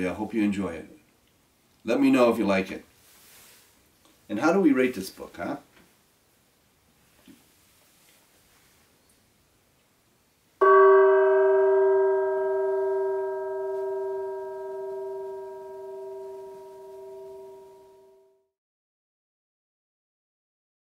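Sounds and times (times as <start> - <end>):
bell ringing: 10.6 - 18.3.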